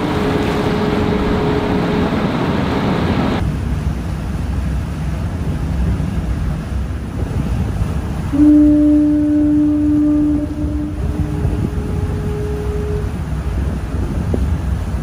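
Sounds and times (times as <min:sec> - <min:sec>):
distant foghorn: 0:00.0 - 0:03.4, 0:08.3 - 0:13.8
low boat rumble: 0:00.0 - 0:15.0
wind and water rushing: 0:00.0 - 0:15.0.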